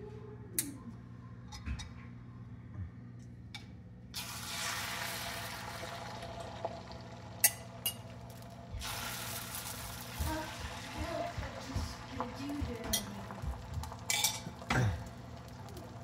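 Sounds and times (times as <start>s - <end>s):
sizzling in a hot pan: 4.2s - 16.0s.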